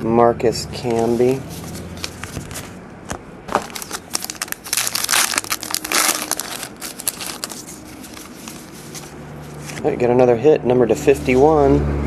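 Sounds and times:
wrapper crinkling: 0.9s - 2.8s, 3.5s - 9.8s.

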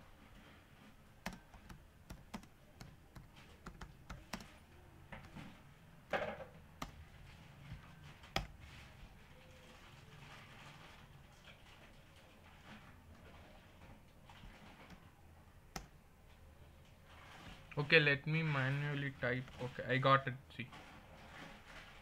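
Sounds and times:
computer keyboard typing: 1.2s - 4.6s, 8.0s - 8.6s.

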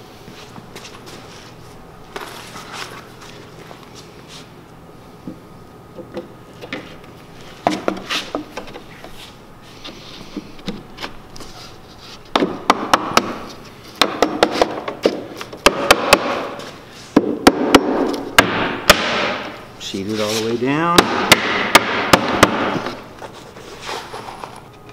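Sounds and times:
hammer knocking on wooden board: 21.0s - 22.8s.

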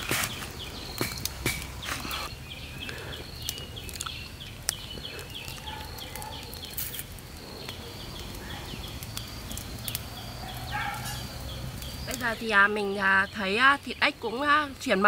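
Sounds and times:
wood fire crackling: 0.0s - 15.0s.

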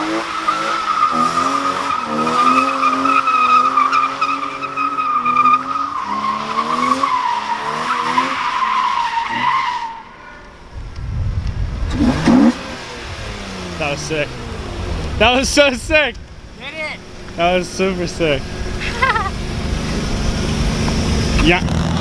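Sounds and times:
car engine revving: 0.0s - 22.0s
tyres squealing: 0.3s - 10.5s.

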